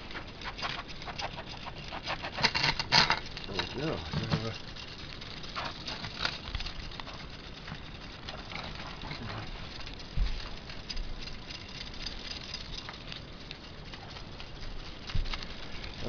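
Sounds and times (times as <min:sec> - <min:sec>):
toy buggy plastic clatter: 0:00.0 - 0:07.2.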